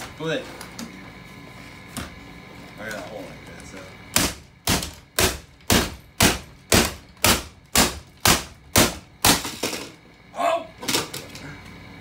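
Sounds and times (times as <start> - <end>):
hammer striking plastic: 4.2 - 9.7.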